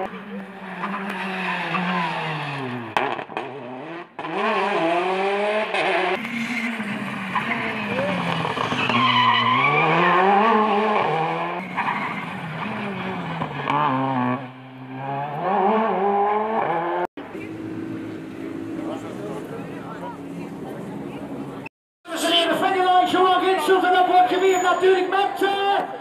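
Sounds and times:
rally car engines revving past: 0.0 - 21.6.

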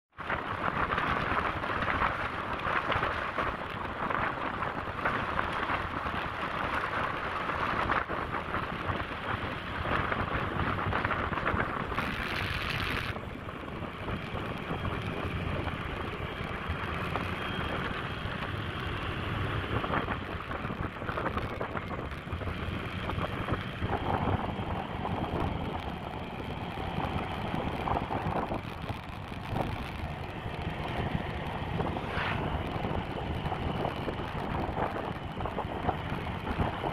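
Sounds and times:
motorcycle riding: 0.1 - 36.9
wind rushing over microphone: 0.1 - 36.9.

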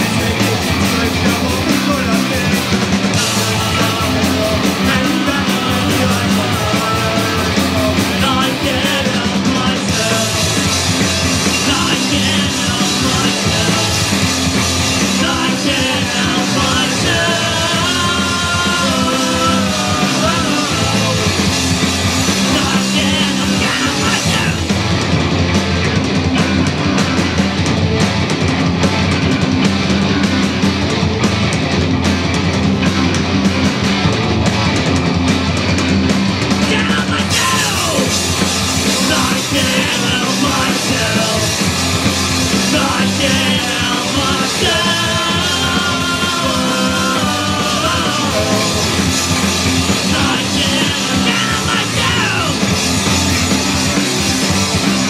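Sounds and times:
man singing lead vocals: 0.0 - 24.8, 36.5 - 53.0
bass guitar: 0.0 - 55.0
drum kit: 0.0 - 55.0
electric guitars: 0.0 - 55.0.

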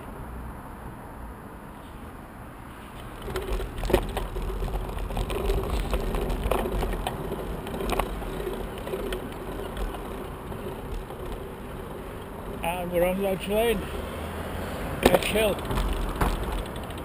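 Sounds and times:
bicycle tyre and road noise: 0.0 - 17.0
sharp knocks or rattles: 3.0 - 12.7, 15.0 - 17.0.

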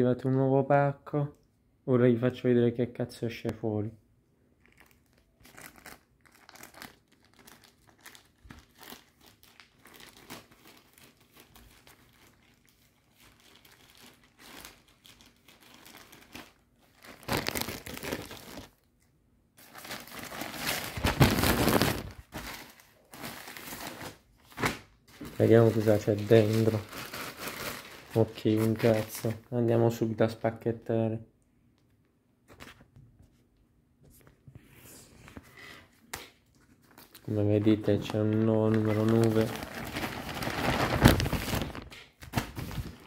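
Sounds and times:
plastic bag crinkling: 4.6 - 18.9, 19.6 - 24.3, 25.1 - 29.3, 36.8 - 43.0.

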